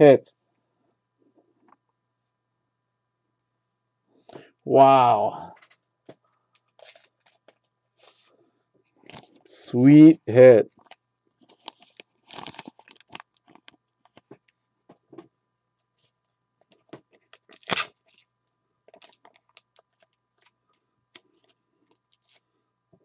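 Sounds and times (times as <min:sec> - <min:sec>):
plastic wrappers rustling: 0:10.8 - 0:14.2.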